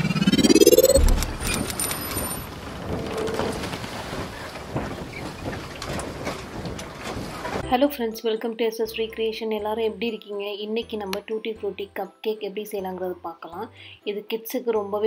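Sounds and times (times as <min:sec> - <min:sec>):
rising swoosh: 0:00.0 - 0:02.2
rumbling tail with clicks: 0:00.0 - 0:03.3
deep boom: 0:00.3 - 0:01.7.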